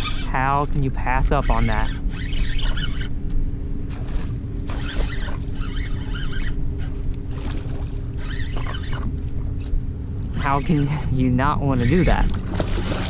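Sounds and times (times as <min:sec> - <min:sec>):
low rumble: 0:00.0 - 0:13.0
water sloshing around kayak: 0:03.8 - 0:10.8, 0:11.9 - 0:13.0.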